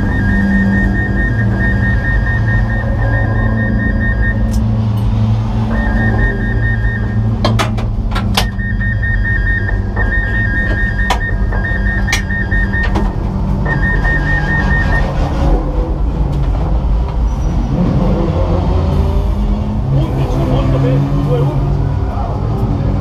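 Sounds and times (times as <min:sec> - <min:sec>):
rapid high electronic beeping: 0:00.0 - 0:15.6.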